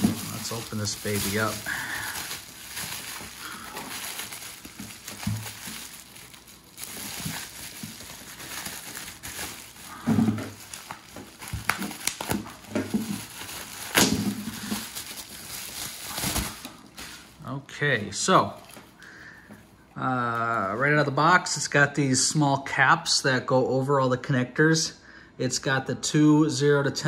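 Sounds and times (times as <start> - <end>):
bubble wrap crinkling: 0.0 - 17.5, 18.1 - 19.0.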